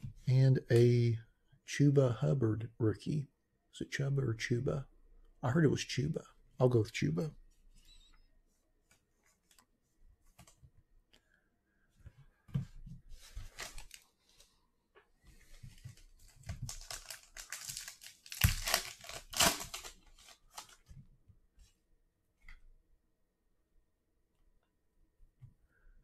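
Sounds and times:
plastic wrapper crinkling: 0:13.4 - 0:14.1, 0:16.0 - 0:20.9
wrapper ripping open: 0:16.6 - 0:20.8.

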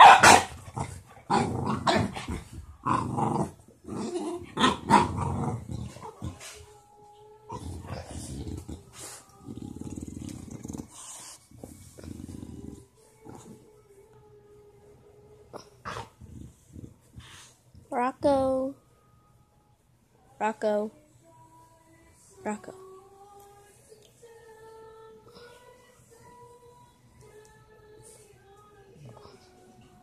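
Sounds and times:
dogs barking: 0:00.0 - 0:02.3
dogs growling: 0:00.2 - 0:06.6, 0:07.5 - 0:13.7, 0:15.5 - 0:17.5.

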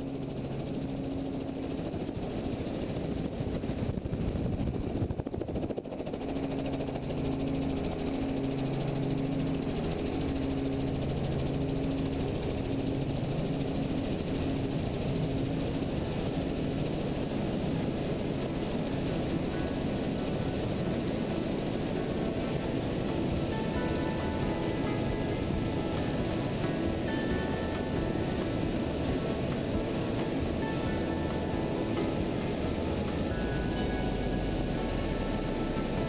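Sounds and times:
helicopter engine and rotor: 0:00.0 - 0:36.0
wind noise: 0:01.9 - 0:06.2.

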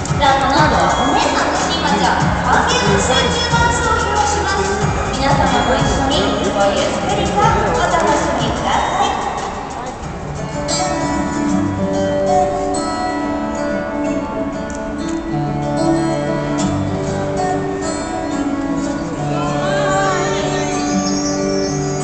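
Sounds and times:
background music with held notes: 0:00.0 - 0:22.0
wavering high melody: 0:18.1 - 0:22.0.

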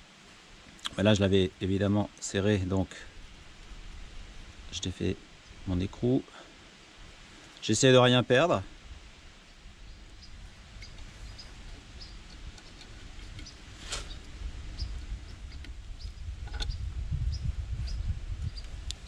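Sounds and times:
bird chirps: 0:09.4 - 0:18.7.

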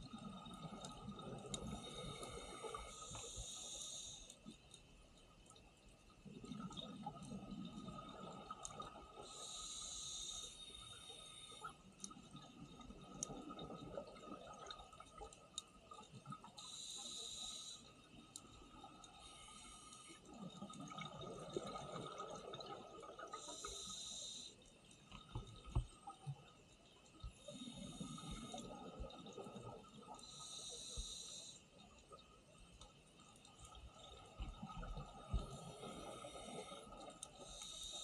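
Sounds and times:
faint steady whine: 0:00.0 - 0:38.0
diver inhaling through regulator: 0:01.7 - 0:04.4, 0:09.2 - 0:11.7, 0:16.6 - 0:17.9, 0:19.2 - 0:20.2, 0:23.4 - 0:24.6, 0:30.2 - 0:31.7, 0:35.4 - 0:38.0.

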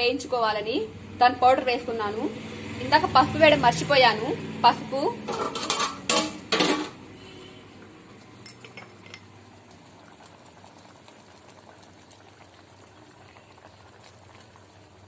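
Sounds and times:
kitchen utensils clattering: 0:05.2 - 0:07.0
spoon clinking against dishes: 0:08.4 - 0:09.3.

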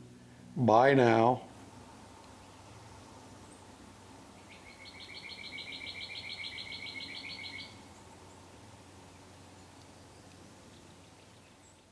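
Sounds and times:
bird trilling: 0:04.4 - 0:07.8.

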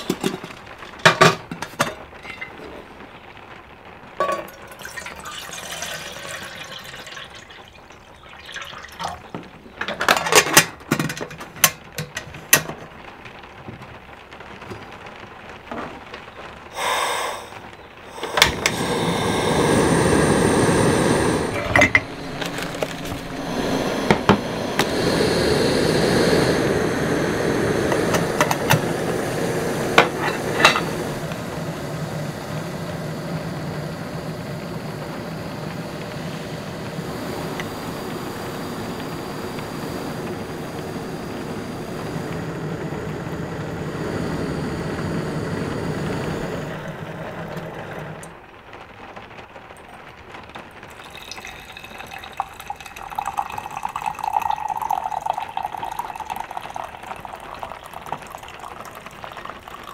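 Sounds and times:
kettle clinking on stove: 0:00.0 - 0:02.8, 0:04.2 - 0:07.4, 0:08.3 - 0:12.8, 0:18.2 - 0:25.0, 0:27.6 - 0:40.4, 0:50.9 - 0:59.8
water pouring into kettle: 0:00.0 - 0:13.0, 0:16.6 - 0:48.8, 0:49.7 - 0:59.9
gas burner hissing: 0:00.0 - 0:59.9.

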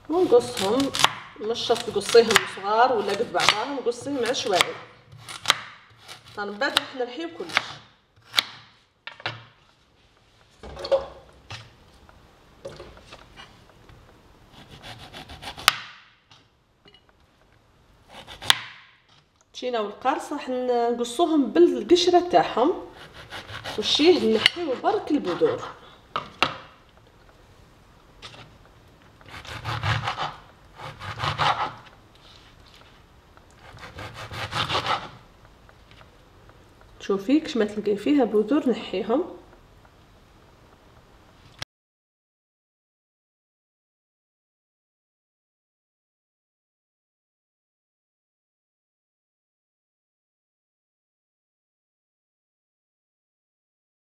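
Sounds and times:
knife sawing through lemon: 0:23.0 - 0:24.4, 0:33.6 - 0:35.1
serrated knife sawing lemon: 0:23.0 - 0:25.7
knife scraping cutting board: 0:23.0 - 0:25.8, 0:29.3 - 0:33.0, 0:33.6 - 0:35.2.

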